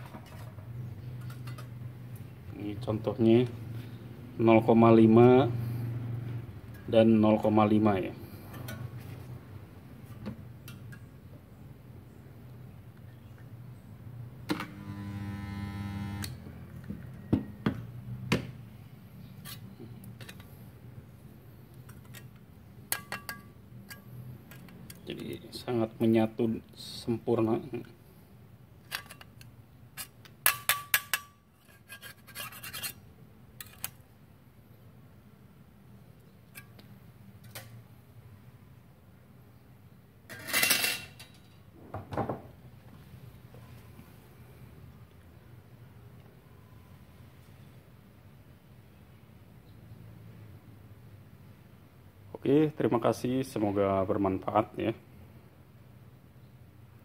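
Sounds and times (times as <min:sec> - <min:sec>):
transformer buzzing: 0:14.5 - 0:16.4.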